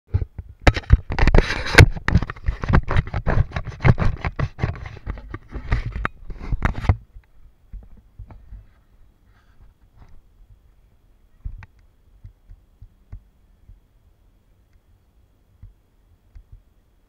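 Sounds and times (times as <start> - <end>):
rapid knocking and scraping: 0.1 - 8.8
faint scattered ticks: 5.4 - 17.0.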